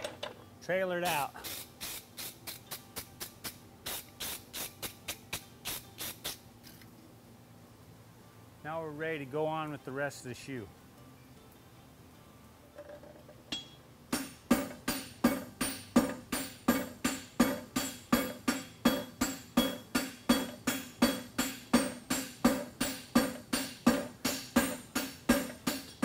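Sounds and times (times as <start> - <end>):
hammer striking hot steel on anvil: 13.5 - 26.0.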